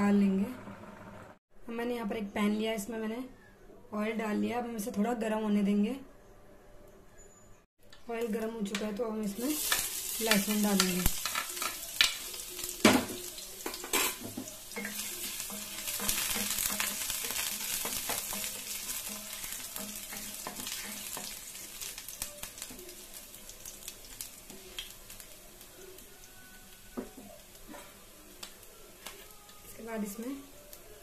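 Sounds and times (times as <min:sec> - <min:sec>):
garlic sizzling in hot oil: 0:09.2 - 0:31.0
utensils knocking against pan: 0:12.8 - 0:21.4.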